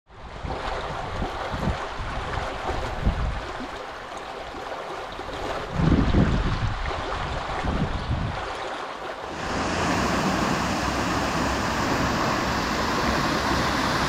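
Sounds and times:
wind buffeting microphone: 0.2 - 3.7, 5.4 - 8.6, 9.2 - 14.0
water rushing over flooded road: 0.3 - 14.0
water bubbling from drain: 9.2 - 14.0.

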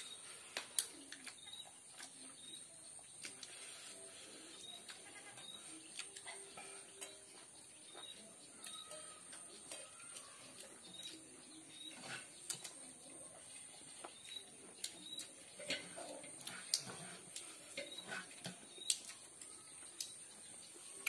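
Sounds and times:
person chewing and lip-smacking: 0.5 - 3.7, 5.8 - 7.2.

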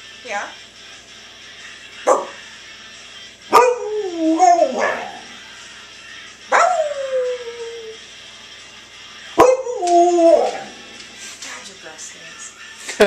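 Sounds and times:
dog barking and howling: 2.0 - 2.4, 3.5 - 5.4, 6.5 - 8.0, 9.4 - 11.0.

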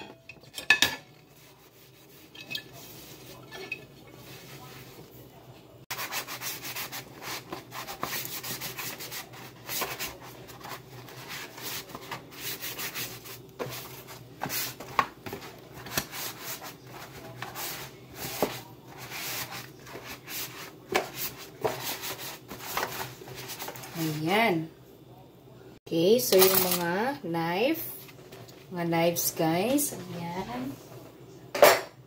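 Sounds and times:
dish towel rubbing plates: 0.0 - 5.2, 5.9 - 24.2.

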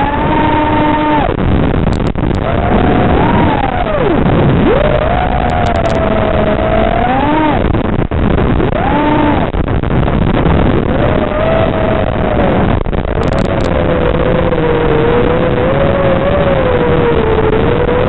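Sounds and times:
drone motors whining: 0.0 - 18.0
heavy rushing noise: 0.0 - 18.0.

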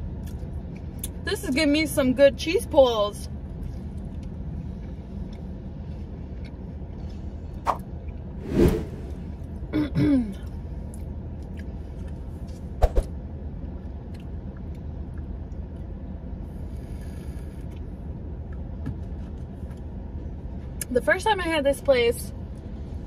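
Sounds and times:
woman clearing her throat: 9.7 - 10.4.

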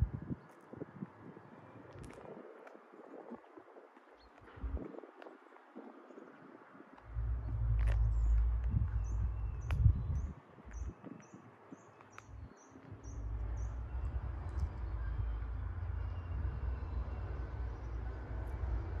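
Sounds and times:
distant diesel engines rumbling: 7.0 - 10.9, 12.2 - 19.0
bird chirping: 7.1 - 18.2.

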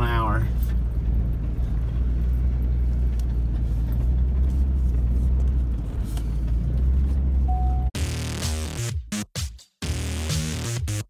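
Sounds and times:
truck engine and tyres droning: 0.0 - 8.0.

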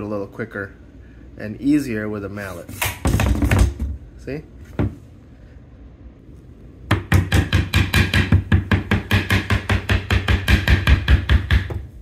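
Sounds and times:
rubber mallet tapping on board: 6.9 - 11.9.

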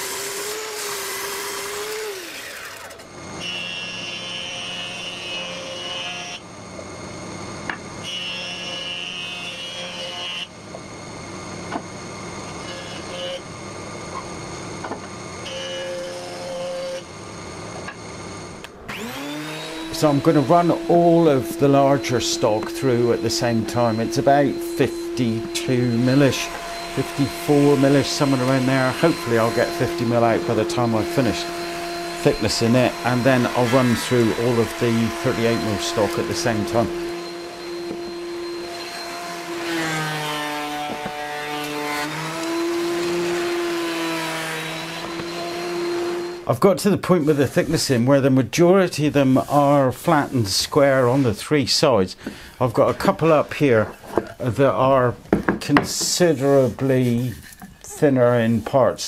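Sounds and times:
planer-jointer cutting board: 0.0 - 6.4, 18.6 - 48.0
thickness planer motor whine: 0.0 - 46.5.

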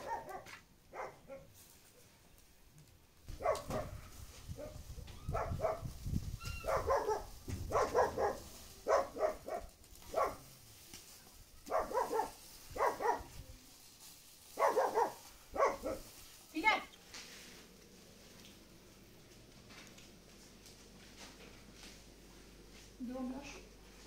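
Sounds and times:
dog barking: 0.0 - 1.5, 3.4 - 4.0, 4.6 - 5.9, 6.6 - 10.4, 11.7 - 13.3, 14.6 - 16.0.

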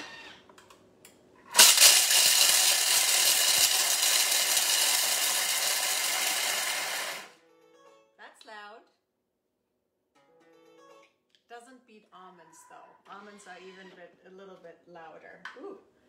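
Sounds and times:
blender grinding chocolate: 1.4 - 7.3.

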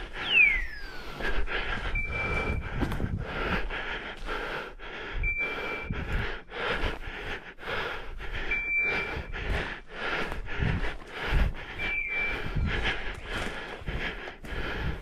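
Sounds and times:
person breathing heavily: 0.0 - 15.0
short high beeps: 0.2 - 1.2, 1.9 - 2.6, 5.2 - 5.9, 8.5 - 9.1, 11.8 - 12.4.

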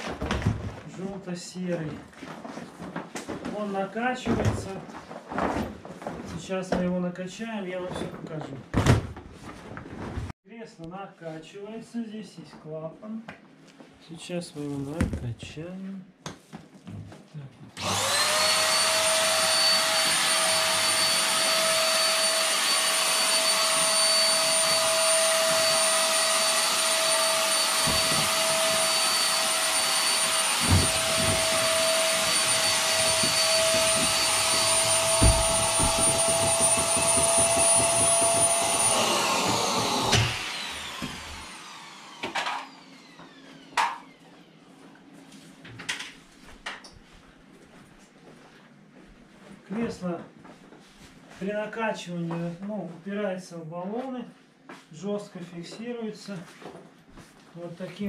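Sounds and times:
electric air pump whining: 17.8 - 44.6.

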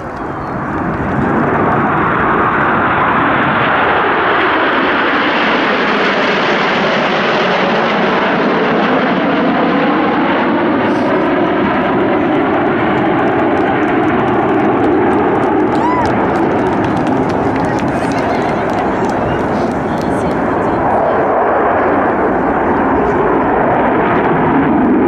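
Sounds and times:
jet aircraft roaring past: 0.0 - 25.0.

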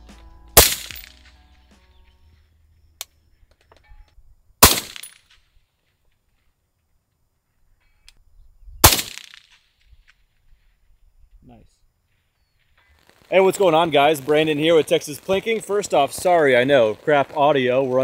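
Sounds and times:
suppressed rifle shots: 0.6 - 1.2, 4.6 - 5.3, 8.8 - 9.6.

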